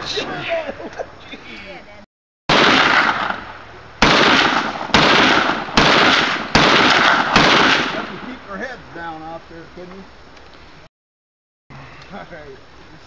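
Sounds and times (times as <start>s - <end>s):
revolver gunshots with echo: 2.5s - 8.4s.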